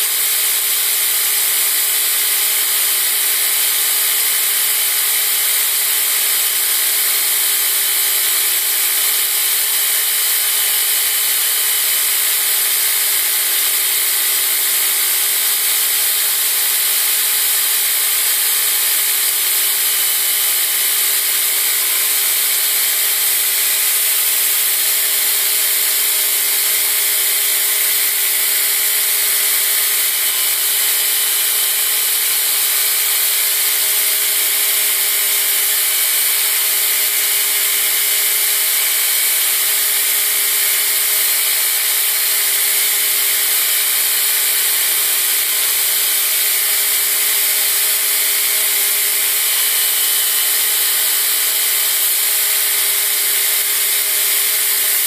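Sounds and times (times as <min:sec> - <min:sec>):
belt grinder grinding steel: 0:00.0 - 0:55.0.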